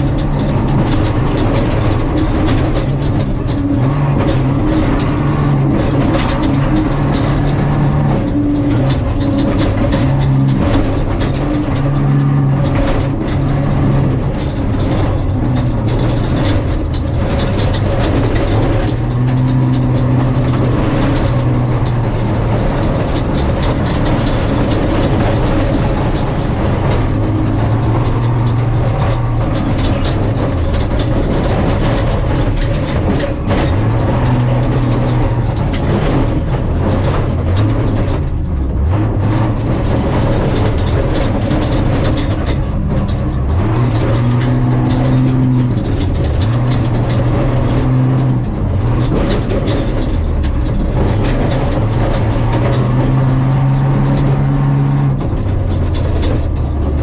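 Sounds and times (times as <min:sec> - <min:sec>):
engine revving: 0:00.0 - 0:57.0
tyres rumbling on gravel: 0:00.0 - 0:57.0
vehicle body rattling and knocking: 0:00.0 - 0:57.0.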